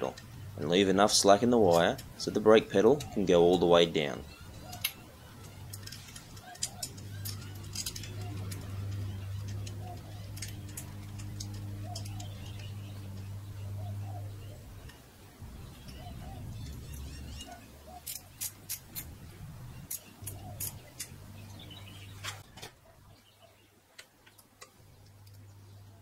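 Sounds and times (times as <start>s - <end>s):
low steady hum: 0.0s - 26.0s
metallic clicks of safety wire: 19.9s - 21.2s.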